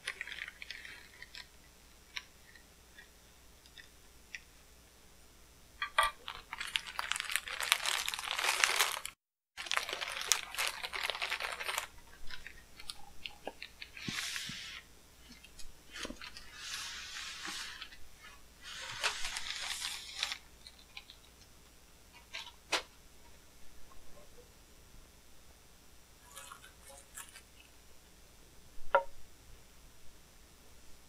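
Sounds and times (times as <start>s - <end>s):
plastic packing wrap crinkling: 0.0s - 1.6s, 5.9s - 18.0s, 18.6s - 21.3s, 26.2s - 27.6s.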